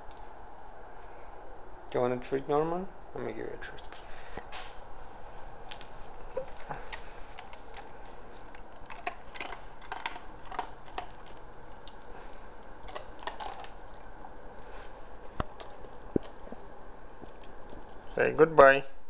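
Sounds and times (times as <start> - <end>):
puppy crunching a treat: 5.6 - 18.4.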